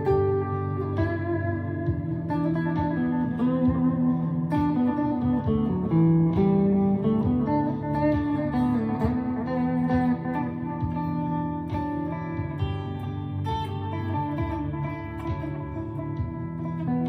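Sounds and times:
electric guitar single notes: 0.0s - 17.0s.

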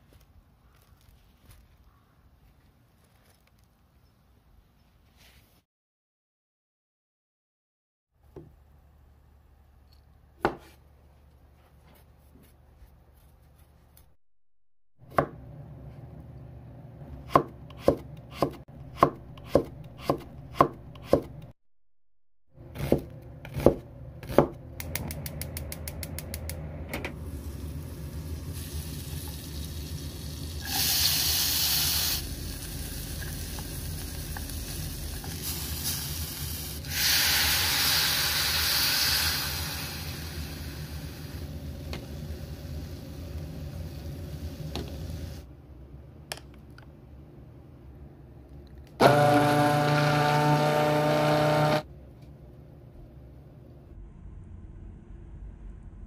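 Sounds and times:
knife chopping on wooden board: 17.3s - 21.4s, 22.8s - 24.6s
slices frying in a pan: 27.2s - 45.4s.

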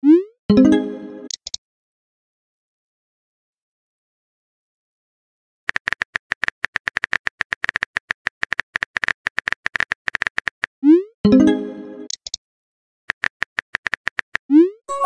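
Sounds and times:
phone keyboard typing clicks: 5.7s - 10.7s, 12.1s - 12.4s, 13.1s - 14.4s.

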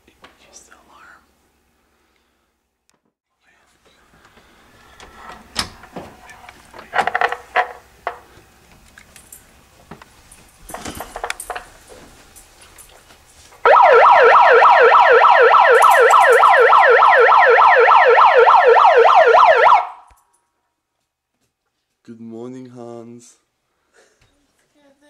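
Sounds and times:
electronic siren alarm warbling: 13.7s - 20.1s.

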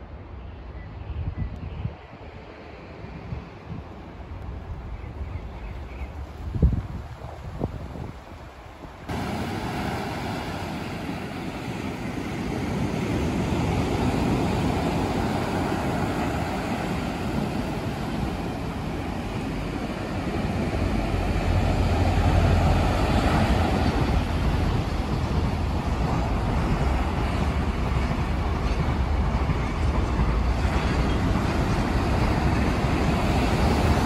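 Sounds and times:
waves breaking on beach: 7.0s - 28.4s, 30.5s - 34.0s.

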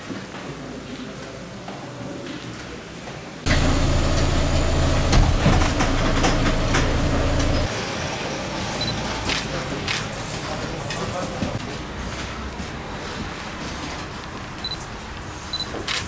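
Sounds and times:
bus engine droning: 3.5s - 9.2s.

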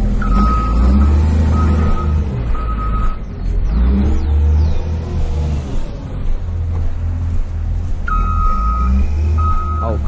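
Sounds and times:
truck engine rumbling: 0.0s - 10.0s
truck reversing alarm beep: 0.2s - 3.2s, 8.1s - 10.0s.

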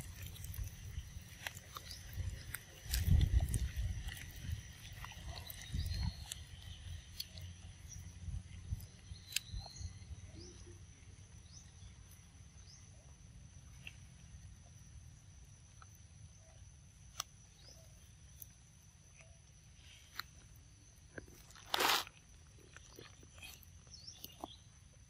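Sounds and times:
monkey chewing: 0.0s - 7.8s.

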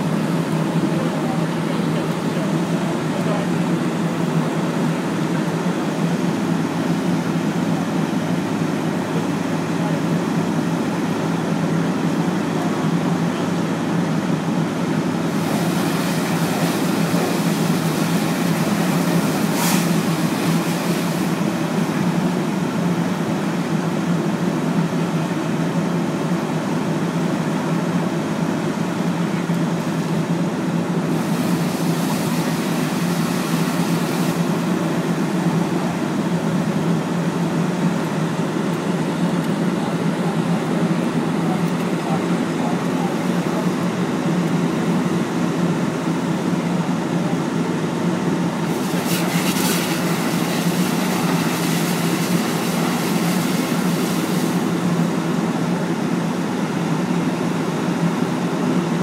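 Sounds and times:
hiss: 15.3s - 21.5s, 31.1s - 34.7s, 48.7s - 54.8s.

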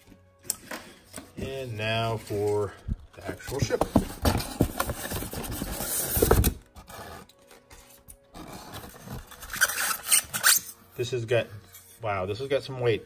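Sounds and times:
cardboard packaging rustling: 1.0s - 10.6s.

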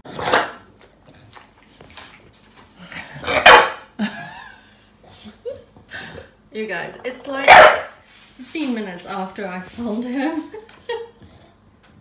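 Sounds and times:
dog barking: 3.3s - 3.8s, 7.4s - 8.0s.

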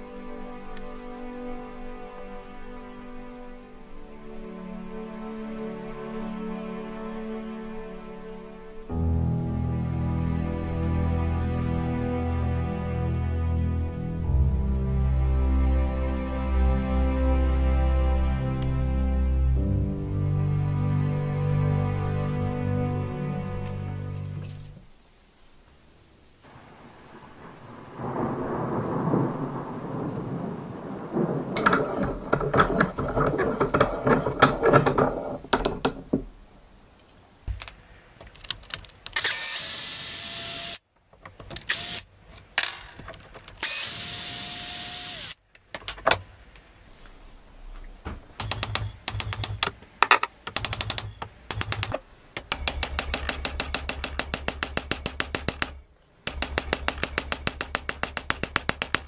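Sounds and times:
drill driving a screw into wood: 39.2s - 40.8s, 41.7s - 42.0s, 43.6s - 45.4s
fast even clicks: 50.5s - 59.0s.

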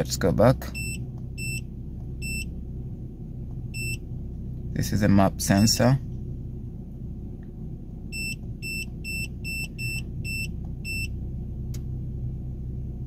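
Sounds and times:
car engine idling: 0.0s - 13.0s
click: 11.7s - 11.9s.

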